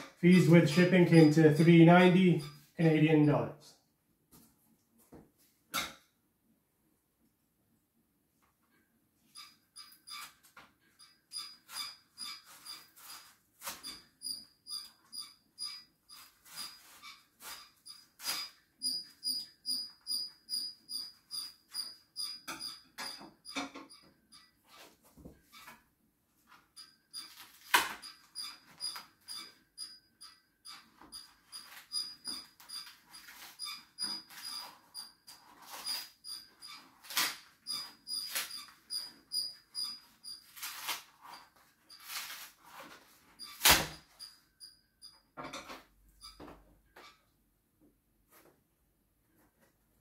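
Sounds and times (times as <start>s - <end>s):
cardboard package scraping and tearing: 36.8s - 38.8s, 40.4s - 43.9s
cardboard tearing: 40.5s - 41.3s, 42.0s - 42.7s.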